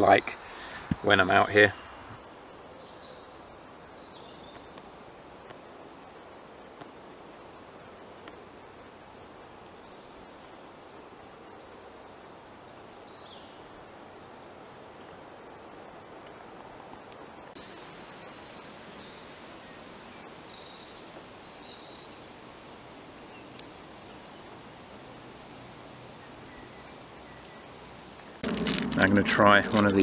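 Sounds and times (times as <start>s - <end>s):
small birds chirping: 0.0s - 5.6s, 17.2s - 22.2s, 23.2s - 30.0s
steady background hiss: 0.0s - 30.0s.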